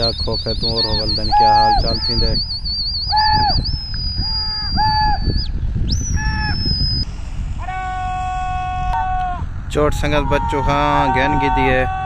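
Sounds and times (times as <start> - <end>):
high whistle swooping: 0.0 - 11.4
wind rumbling on microphone: 0.0 - 12.0.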